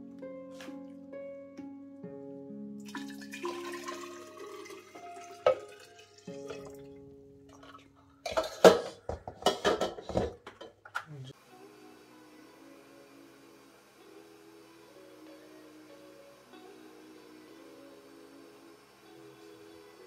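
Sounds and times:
background music with held notes: 0:00.0 - 0:10.3, 0:11.3 - 0:20.0
liquid pouring and dripping: 0:02.8 - 0:08.7
kitchenware clinking and knocking: 0:05.4 - 0:05.8, 0:07.5 - 0:11.1.

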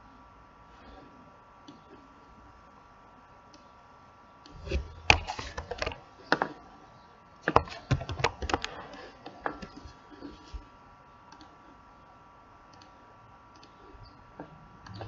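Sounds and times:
faint steady hum: 0:00.0 - 0:15.0
keyboard keys tapping: 0:07.5 - 0:09.9.

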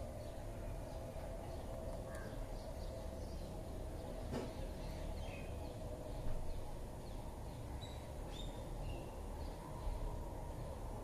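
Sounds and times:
steady low background hum: 0:00.0 - 0:11.0.

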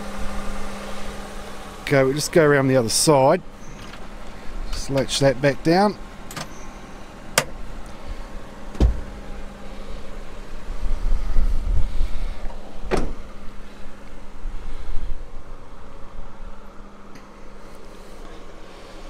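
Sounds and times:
low rumbling handling noise: 0:02.1 - 0:18.5
seat closing clunk: 0:03.6 - 0:05.2, 0:06.2 - 0:07.6, 0:08.7 - 0:09.4, 0:12.4 - 0:13.4
sharp latch clicks: 0:06.3 - 0:06.6.

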